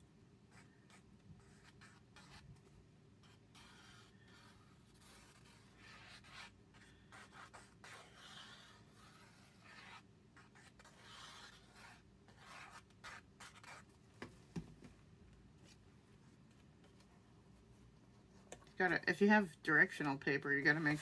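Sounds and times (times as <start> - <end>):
glue bottle tip scratching paper: 0.6 - 2.5, 3.2 - 13.8.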